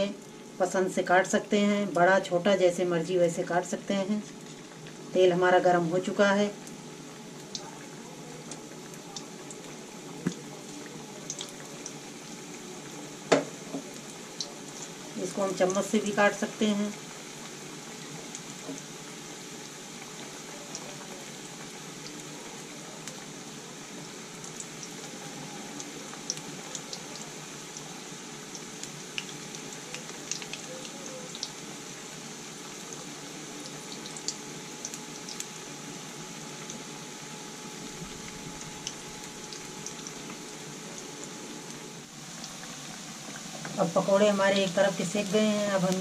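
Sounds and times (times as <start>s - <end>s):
oil bubbling and sizzling: 0.0s - 46.0s
oil popping and crackling: 4.2s - 5.1s, 6.6s - 15.2s, 24.0s - 35.9s, 37.7s - 43.9s.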